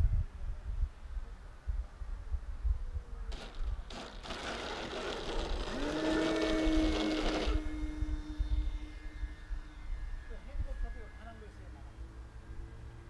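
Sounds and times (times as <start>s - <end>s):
wind buffeting microphone: 0.0s - 12.8s
model airplane motor droning: 3.1s - 13.0s.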